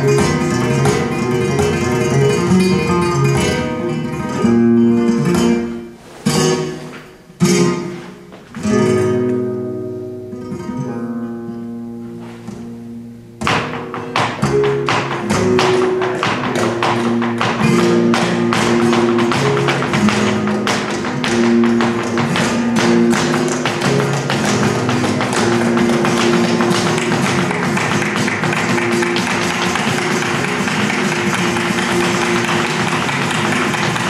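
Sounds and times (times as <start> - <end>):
flamenco music: 0.0 - 34.0
heeled shoes tapping on wooden floor: 13.4 - 34.0.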